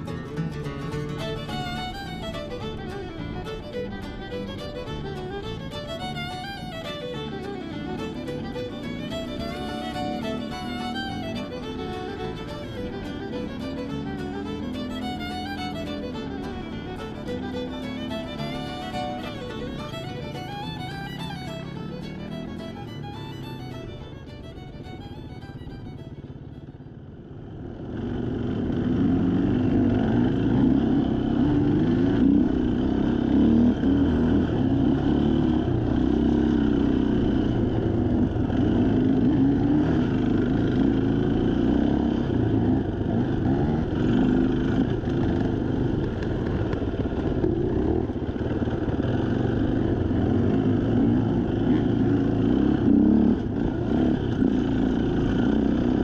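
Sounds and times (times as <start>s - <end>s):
dirt bike engine revving: 28.1s - 56.0s.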